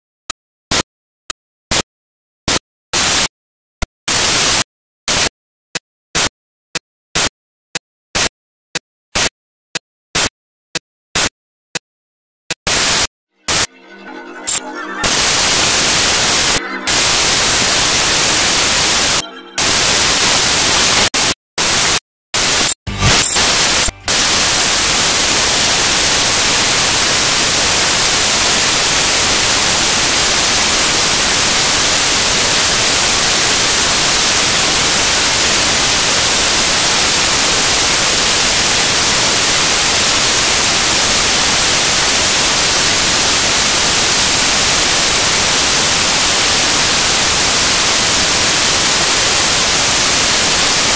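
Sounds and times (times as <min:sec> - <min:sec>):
static hiss: 0:02.5 - 0:03.3, 0:04.1 - 0:05.3, 0:12.6 - 0:50.9.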